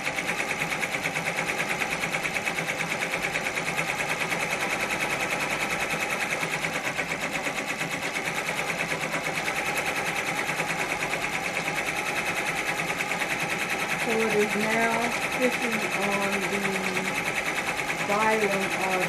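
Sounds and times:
embroidery machine clattering: 0.0s - 19.0s.

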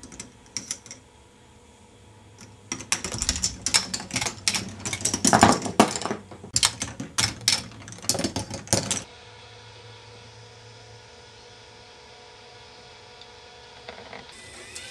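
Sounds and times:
faint steady hum: 0.0s - 14.9s
plastic balls rattling and clicking: 2.4s - 9.1s.

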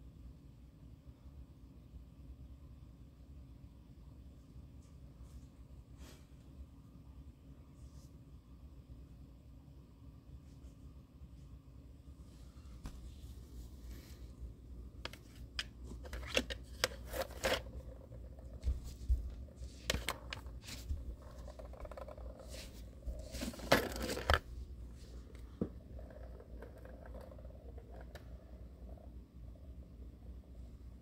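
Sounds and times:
plastic balls rattling in track: 15.0s - 24.5s, 25.3s - 29.0s.

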